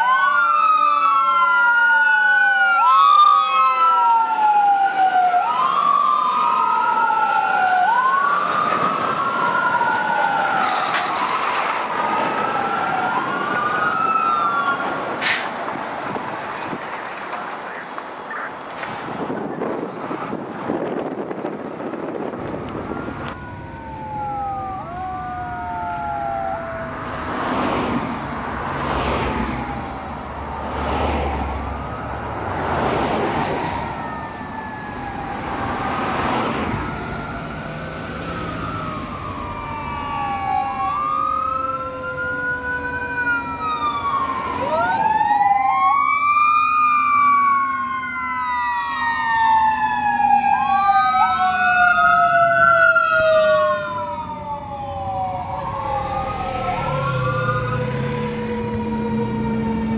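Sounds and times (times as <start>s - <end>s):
electronic wail and yelp sirens: 0.0s - 16.3s, 22.4s - 59.9s.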